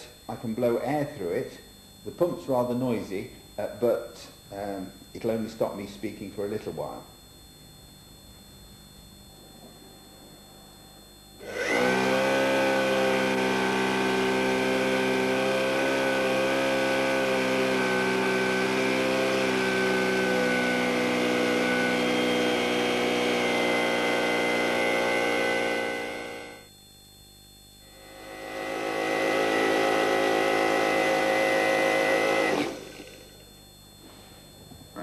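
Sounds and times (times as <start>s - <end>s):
electric air pump humming: 11.3s - 26.9s, 27.7s - 35.0s.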